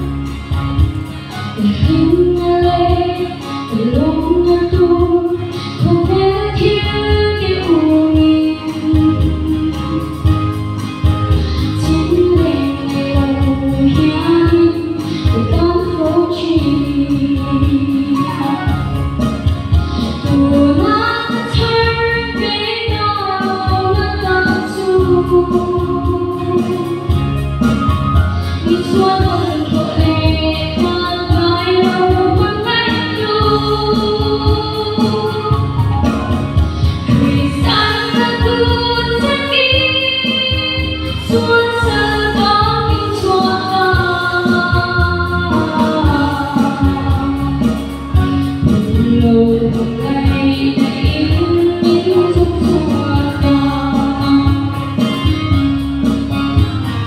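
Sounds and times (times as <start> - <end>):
instrumental accompaniment: 0.0 - 57.0
woman singing gospel song: 1.5 - 10.3, 11.7 - 19.0, 20.0 - 27.2, 28.6 - 55.7.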